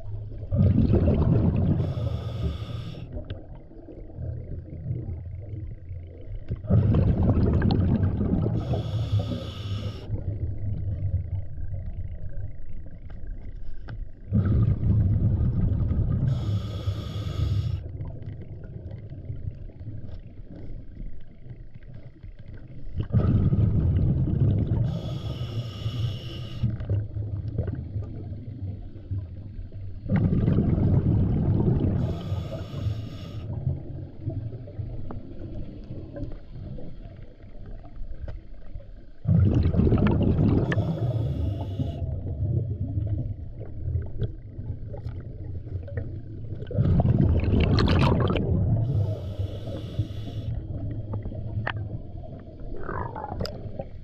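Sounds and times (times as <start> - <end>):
rumble of exhaled bubbles: 0.0 - 54.0
regulator hiss: 8.6 - 10.1, 16.3 - 17.8, 24.9 - 26.7, 32.0 - 33.5, 48.9 - 50.5.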